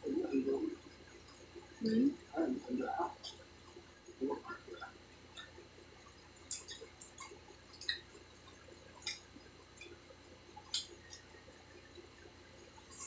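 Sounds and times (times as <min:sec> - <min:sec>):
people chewing food: 0:00.0 - 0:13.0
mouth clicks and smacks: 0:03.2 - 0:10.0, 0:10.6 - 0:11.3.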